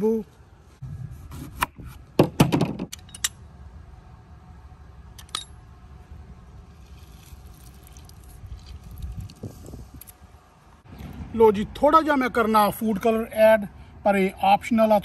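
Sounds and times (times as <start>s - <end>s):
wind rumble on microphone: 6.2s - 11.5s.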